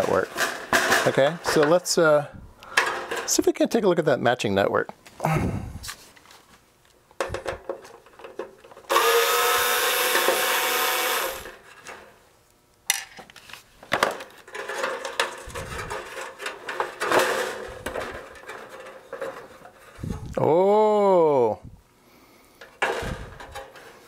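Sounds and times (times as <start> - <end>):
handheld power tool motor: 8.9 - 11.6
metal parts clicking and rattling: 14.0 - 19.7.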